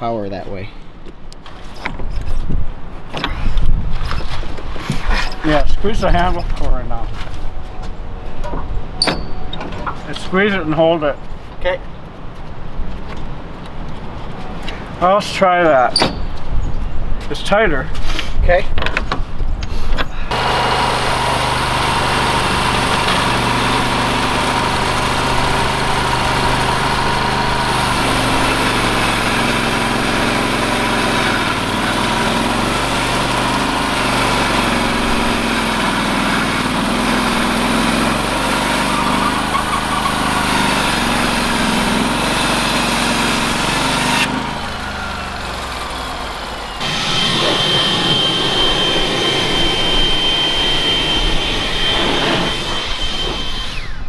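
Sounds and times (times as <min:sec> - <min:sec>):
bandsaw mill engine drone: 0:20.3 - 0:54.0
machine noise with high whine: 0:20.3 - 0:54.0.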